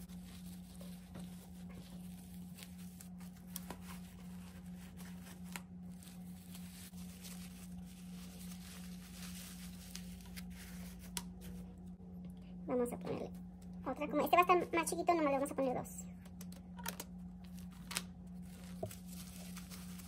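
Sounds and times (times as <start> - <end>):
diaper rustling and crinkling: 0.0 - 11.8, 17.4 - 20.0
steady low hum: 0.0 - 20.0.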